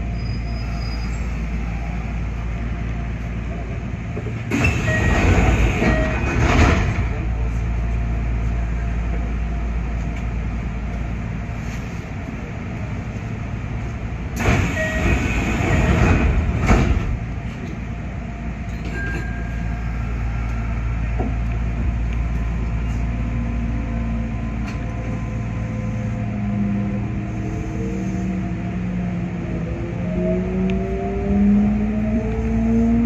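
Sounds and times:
train equipment low rumble: 0.0s - 33.0s.

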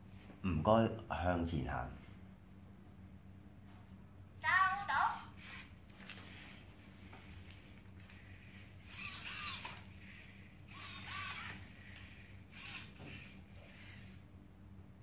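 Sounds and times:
robot servo motors whirring: 5.1s - 14.2s.

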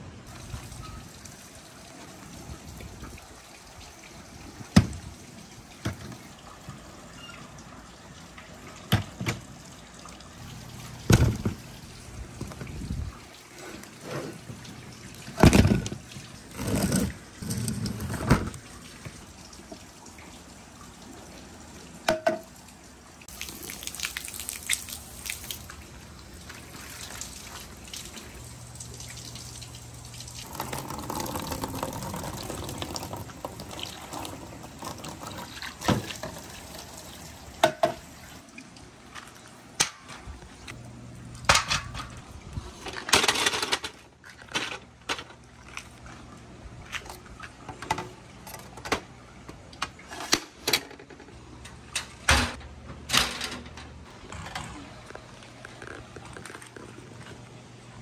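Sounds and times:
water running and splashing: 0.3s - 41.4s.

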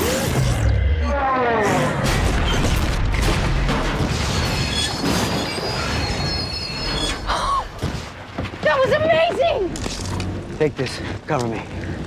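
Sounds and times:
fire rumble and crackle: 2.1s - 12.0s
high squealing: 4.4s - 7.4s.

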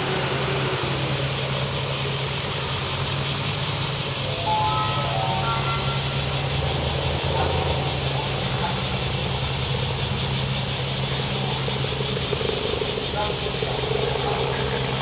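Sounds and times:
distant electric train approaching: 0.0s - 15.0s
low hum: 3.8s - 7.9s.

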